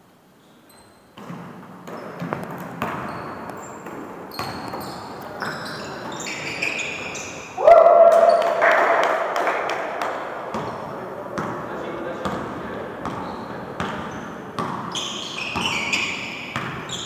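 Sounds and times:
sneakers squeaking: 0:00.4 - 0:08.7, 0:10.3 - 0:17.0
basketball bouncing: 0:01.2 - 0:03.2, 0:14.6 - 0:14.9, 0:16.5 - 0:16.8.

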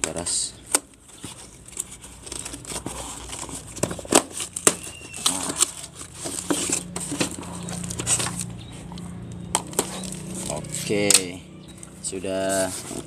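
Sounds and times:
wrapping crinkling: 0:01.0 - 0:08.9, 0:09.6 - 0:11.2.

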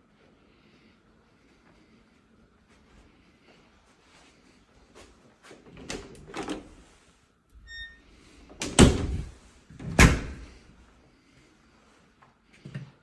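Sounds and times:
loud door thuds: 0:08.6 - 0:10.5.

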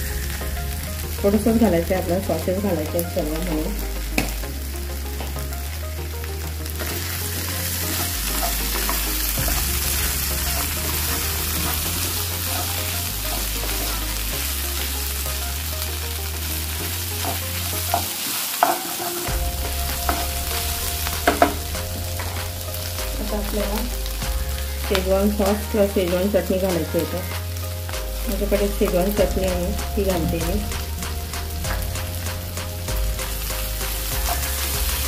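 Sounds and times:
food sizzling in a pan: 0:00.0 - 0:35.0
wooden spatula stirring food: 0:06.7 - 0:35.0
spatula knocking on pan: 0:21.2 - 0:22.4.

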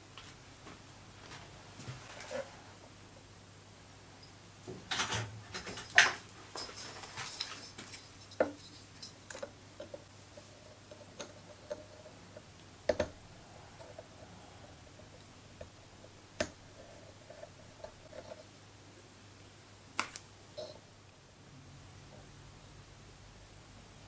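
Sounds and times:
metal parts clicking and scraping: 0:04.9 - 0:09.5.

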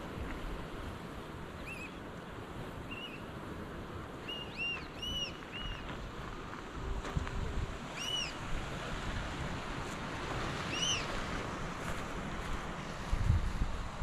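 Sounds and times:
surf: 0:00.0 - 0:14.0
wind: 0:00.0 - 0:14.0
bird calls: 0:01.6 - 0:02.0, 0:02.9 - 0:03.3, 0:04.2 - 0:06.0, 0:07.9 - 0:08.4, 0:10.6 - 0:11.2.

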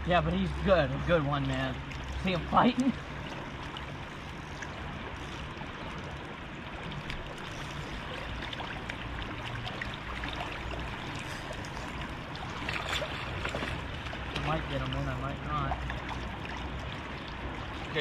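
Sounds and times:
fast river water rushing: 0:00.0 - 0:18.0.

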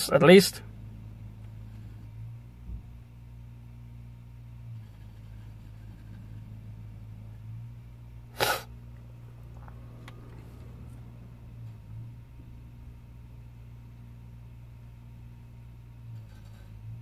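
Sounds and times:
low steady hum: 0:00.0 - 0:17.0
person sneezing: 0:08.3 - 0:08.7.

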